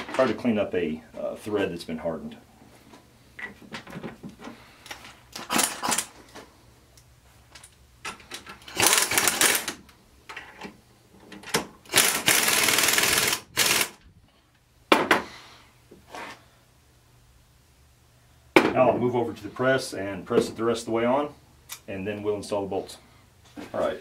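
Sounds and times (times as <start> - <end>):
pneumatic impact wrench: 5.3 - 6.2, 8.6 - 9.8, 11.8 - 14.0.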